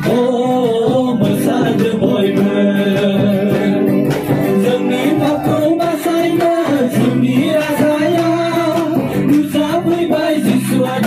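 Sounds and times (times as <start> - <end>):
loud music: 0.0 - 11.0
person singing: 0.0 - 11.0.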